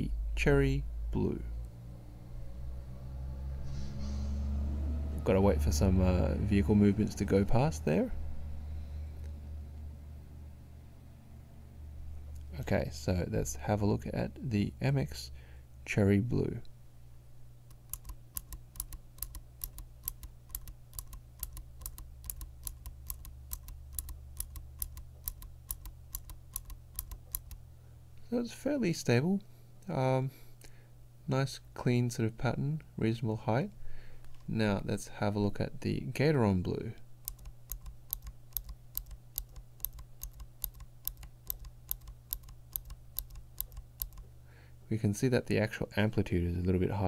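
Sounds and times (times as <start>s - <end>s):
mechanical keyboard switch clicks: 17.7s - 27.6s, 37.2s - 44.2s.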